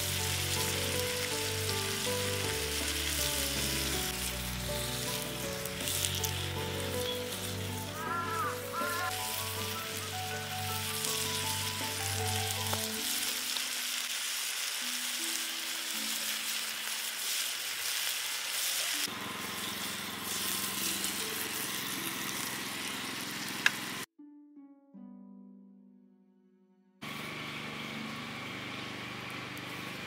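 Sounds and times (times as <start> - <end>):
soft background music: 0.0 - 17.4
food sizzling in a pan: 0.0 - 24.1.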